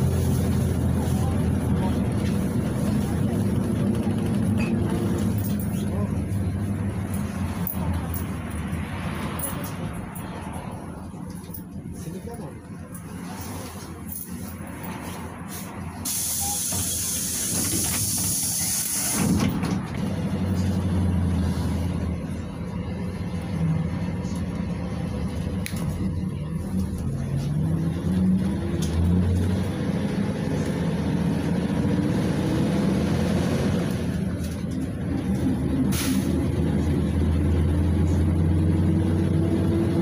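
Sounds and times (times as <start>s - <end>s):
road and tyre noise: 0.0s - 40.0s
bus engine rising in pitch: 15.6s - 40.0s
loud air hiss: 16.0s - 19.4s.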